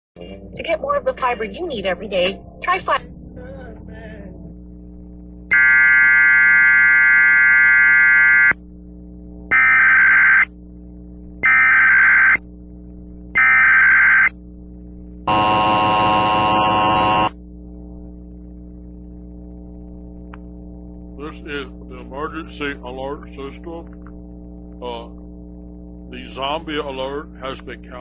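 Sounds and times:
low buzzy tone: 0:00.2 - 0:28.0
data signal bursts: 0:05.5 - 0:08.6, 0:09.5 - 0:10.5, 0:11.4 - 0:12.4, 0:13.4 - 0:14.3, 0:15.3 - 0:17.3
electronic alert tone: 0:15.3 - 0:17.3.

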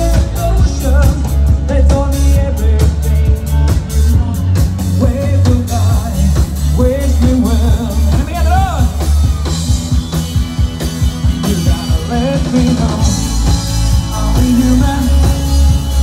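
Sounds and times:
drums with heavy bass beat: 0:00.0 - 0:16.0
electric guitars: 0:00.0 - 0:16.0
keyboard: 0:00.0 - 0:16.0
person singing: 0:11.2 - 0:16.0.

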